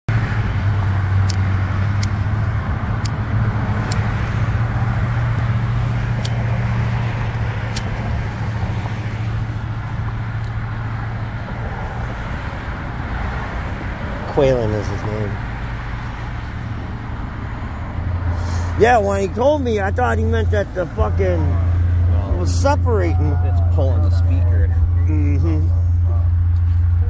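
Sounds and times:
sharp ticks: 0:01.2 - 0:02.2, 0:03.8 - 0:04.1.

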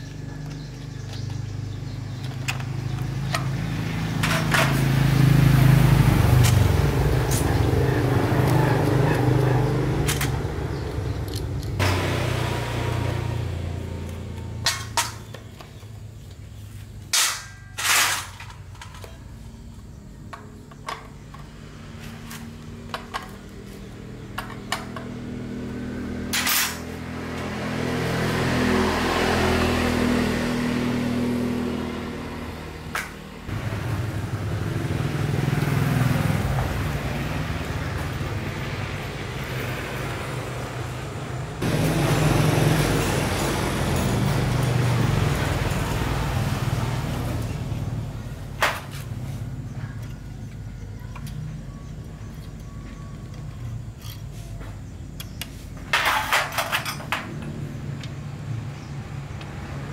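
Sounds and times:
petrol generator engine running: 0:31.9 - 0:53.9.

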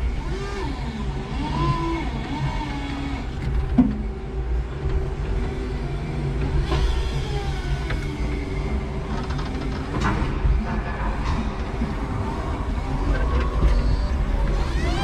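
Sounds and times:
electric forklift motor humming: 0:00.0 - 0:10.5, 0:11.6 - 0:15.0.

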